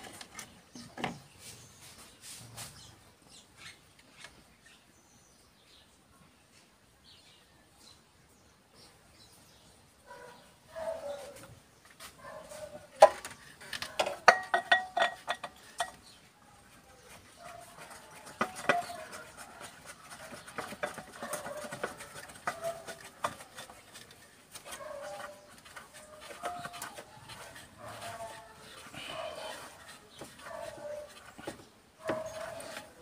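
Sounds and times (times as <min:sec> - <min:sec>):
metal tools clinking and rattling: 0:13.6 - 0:16.0.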